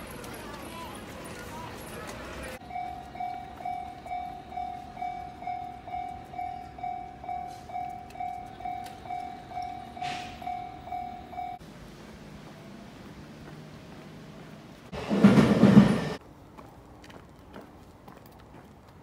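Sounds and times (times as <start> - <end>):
level crossing warning bell: 0.0 - 11.7.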